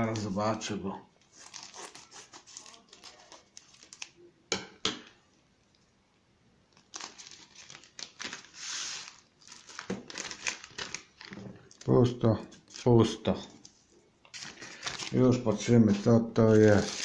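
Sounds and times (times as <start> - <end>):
scissors cutting plastic: 1.3 - 4.0
plastic bag crinkling: 1.3 - 4.2, 6.7 - 12.9, 14.3 - 17.0.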